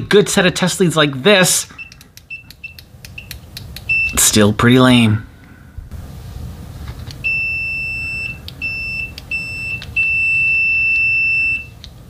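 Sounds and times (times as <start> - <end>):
high-pitched continuity beeper: 7.2 - 11.7.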